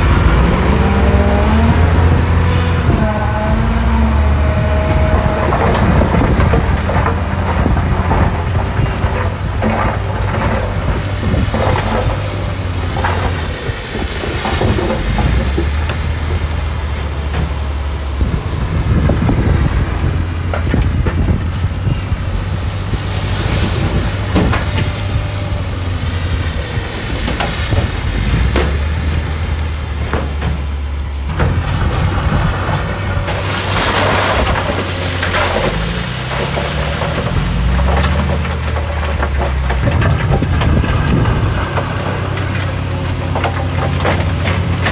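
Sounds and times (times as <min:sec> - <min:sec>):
diesel earthmoving machinery running: 0:00.0 - 0:44.9
stones clanking and rattling: 0:32.2 - 0:44.9.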